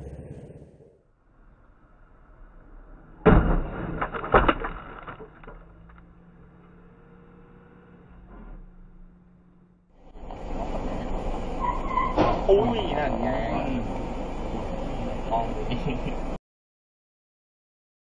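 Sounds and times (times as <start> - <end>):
vehicle crash: 0.0 - 6.9, 10.1 - 14.8
debris clattering: 3.2 - 6.2.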